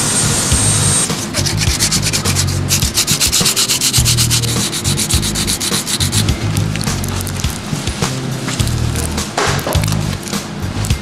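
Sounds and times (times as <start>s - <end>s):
sanding block scratching plastic: 1.0s - 8.6s.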